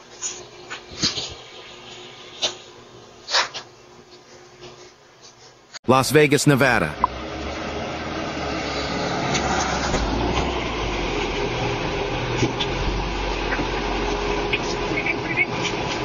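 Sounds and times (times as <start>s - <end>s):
outdoor noise: 0.0s - 16.0s
car engine running: 6.8s - 16.0s.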